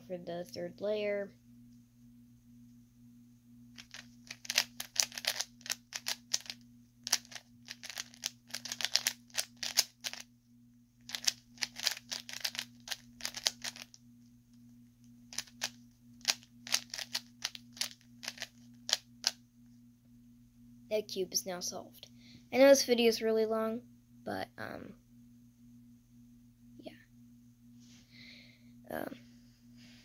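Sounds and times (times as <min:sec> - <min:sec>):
puzzle cube layers clicking: 0:03.8 - 0:10.2, 0:11.1 - 0:13.9, 0:16.3 - 0:19.0.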